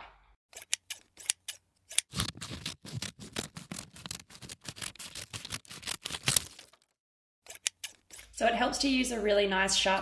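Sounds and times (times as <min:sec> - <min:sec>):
scissors snipping paper: 0:00.6 - 0:06.9.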